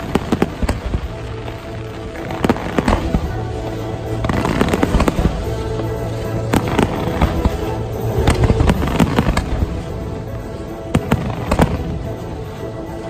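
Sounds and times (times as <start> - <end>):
fireworks bangs and crackles: 0.0 - 13.0
music: 0.0 - 13.0.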